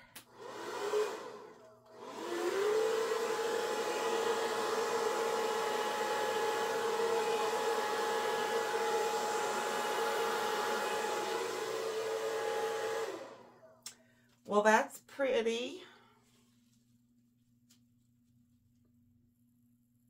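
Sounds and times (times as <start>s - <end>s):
hair dryer running: 0.0s - 13.6s.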